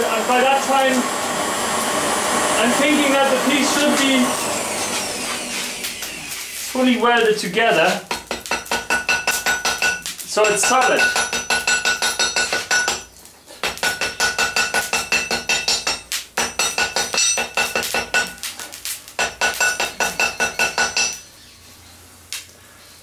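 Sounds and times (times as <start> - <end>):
hammer striking metal on anvil: 8.1 - 18.4, 19.2 - 21.2
anvil ringing: 8.3 - 18.4, 19.2 - 21.2.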